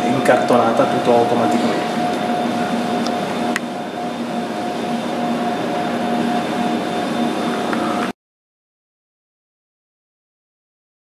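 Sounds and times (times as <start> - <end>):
mill machinery droning: 0.0 - 8.2.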